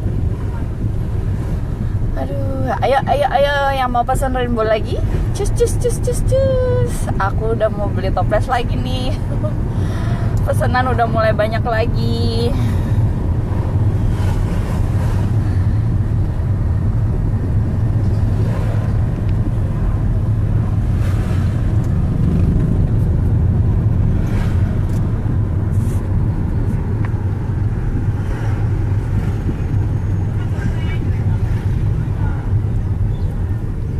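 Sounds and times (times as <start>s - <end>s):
car engine and road noise: 0.0s - 33.9s
passing traffic swishes: 0.0s - 33.9s.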